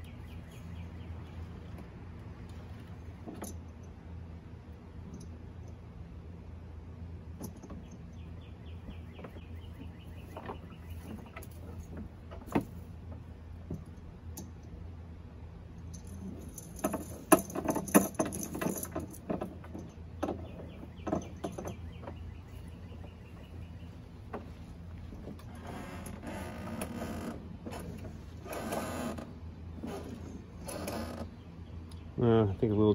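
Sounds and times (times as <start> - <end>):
metal pulley clinking and rattling: 15.8 - 22.2.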